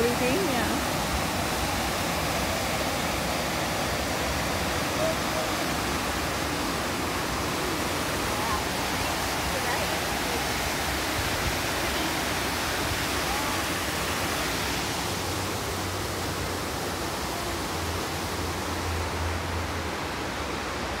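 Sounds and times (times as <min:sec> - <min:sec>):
waterfall pouring into pool: 0:00.0 - 0:21.0.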